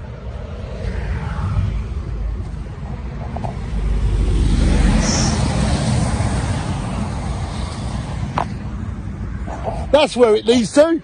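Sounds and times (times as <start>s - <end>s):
road traffic rush: 0.0s - 11.0s.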